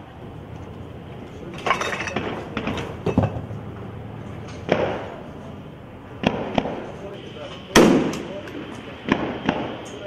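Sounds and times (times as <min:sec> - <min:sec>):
steady low background noise: 0:00.0 - 0:10.0
sharp cracks and clinks: 0:01.4 - 0:03.5.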